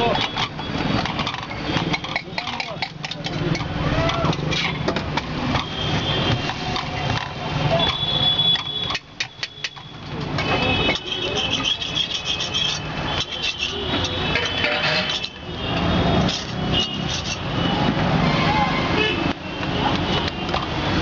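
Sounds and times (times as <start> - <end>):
traffic: 0.0 - 21.0
voices: 6.4 - 8.6.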